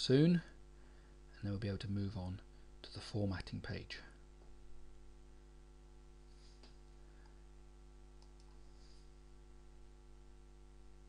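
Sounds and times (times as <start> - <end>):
low electrical hum: 0.0 - 11.0
faint clicks: 8.2 - 8.6.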